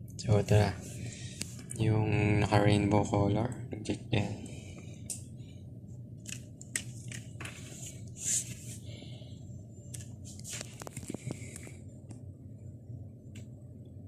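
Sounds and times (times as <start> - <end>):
low steady hum: 0.0 - 14.0
handling rustles and scrapes: 7.1 - 8.9, 10.0 - 11.5.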